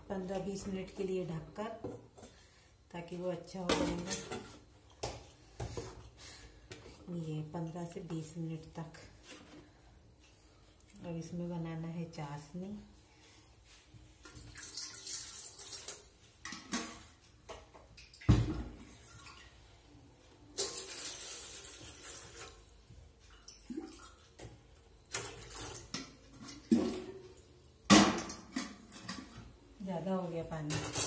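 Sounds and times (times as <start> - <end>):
water pouring from pot: 14.2 - 16.6, 20.6 - 24.4.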